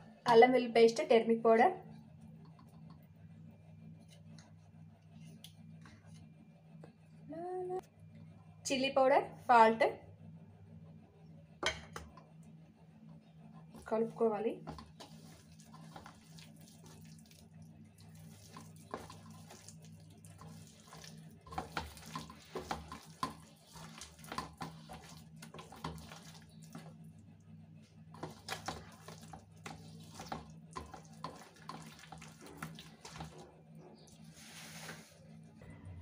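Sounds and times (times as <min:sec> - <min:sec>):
faint low hum: 0:00.0 - 0:21.5, 0:24.7 - 0:36.0
hand squelching marinade in steel bowl: 0:14.8 - 0:27.0, 0:28.2 - 0:33.4.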